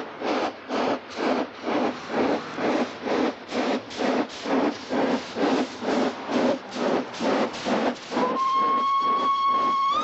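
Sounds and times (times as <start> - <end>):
steam locomotive chuffing: 0.0 - 10.0.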